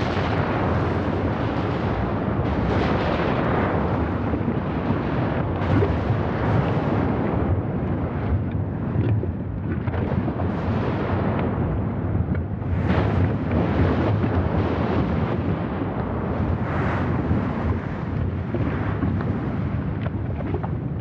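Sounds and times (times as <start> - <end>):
deep volcanic rumble: 0.0 - 21.0
volcanic blasts: 0.0 - 21.0
wind buffeting microphone: 0.0 - 21.0.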